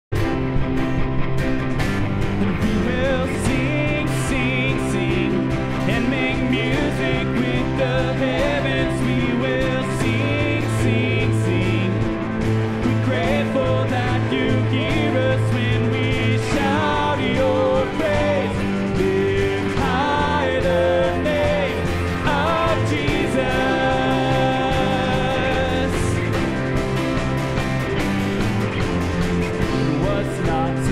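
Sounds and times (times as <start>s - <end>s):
acoustic guitar: 0.1s - 30.9s
drums: 0.1s - 30.9s
electric bass: 0.1s - 30.9s
person singing with vibrato: 2.6s - 26.6s.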